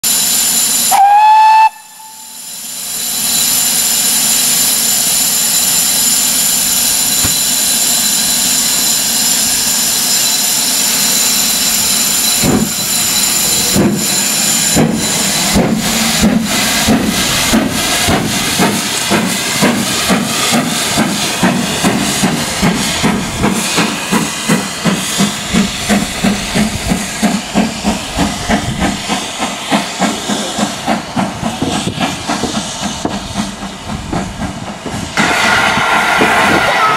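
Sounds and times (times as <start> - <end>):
steam hissing: 0.1 - 36.9
steam locomotive whistle: 0.7 - 2.6, 35.2 - 36.9
locomotive exhaust beats: 12.4 - 36.9.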